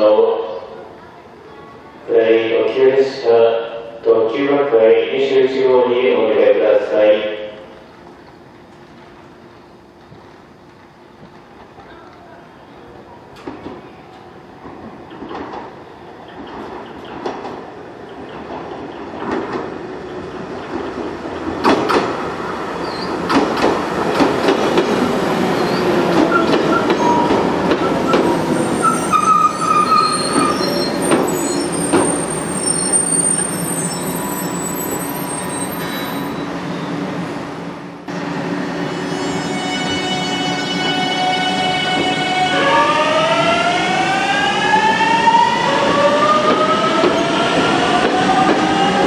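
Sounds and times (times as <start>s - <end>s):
electric train pulling in: 14.1s - 49.0s
train wheels clacking over rail joints: 21.5s - 22.2s, 23.2s - 25.1s, 26.1s - 28.3s
brakes squealing: 28.0s - 36.9s.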